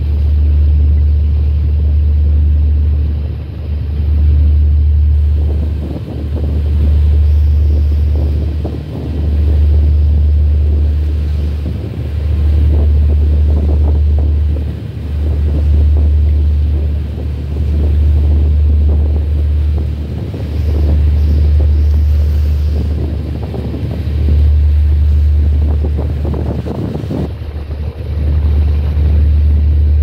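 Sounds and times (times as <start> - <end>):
faint water: 0.0 - 30.0
wind buffeting microphone: 0.0 - 30.0.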